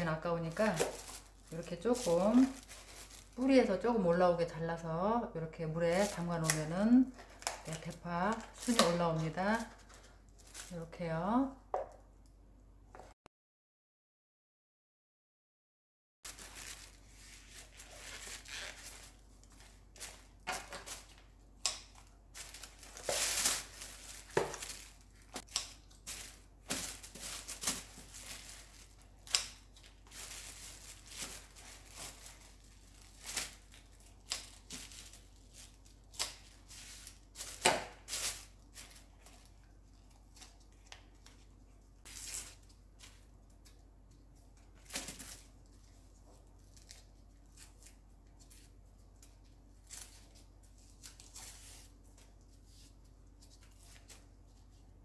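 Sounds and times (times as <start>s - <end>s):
plastic bag rustling: 0.0s - 4.1s, 5.8s - 10.9s, 16.3s - 21.4s, 22.0s - 43.6s.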